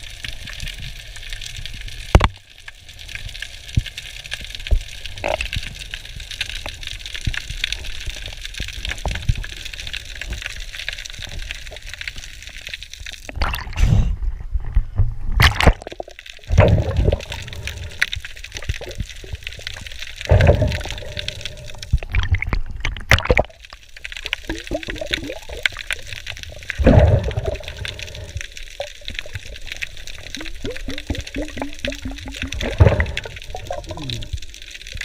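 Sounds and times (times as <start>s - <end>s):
underwater bubbling: 0.0s - 35.0s
sea water splashing: 15.4s - 35.0s.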